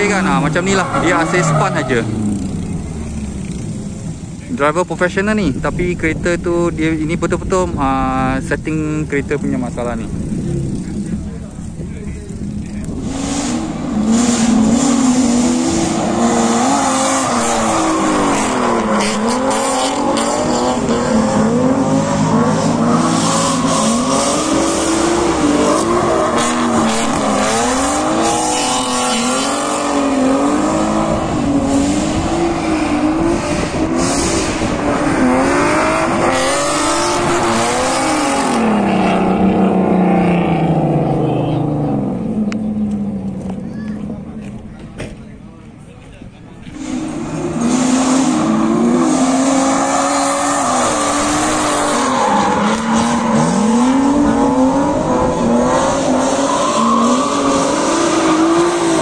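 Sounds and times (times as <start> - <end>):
car engines revving: 0.0 - 59.0.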